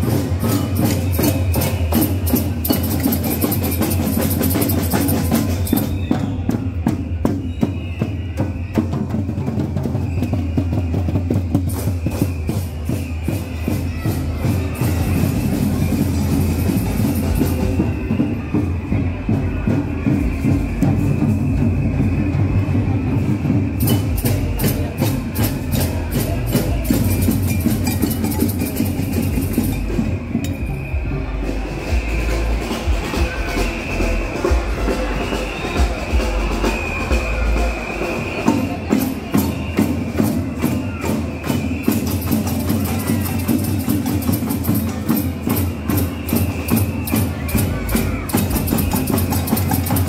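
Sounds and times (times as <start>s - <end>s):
music with sharp percussion beat: 0.0s - 50.0s.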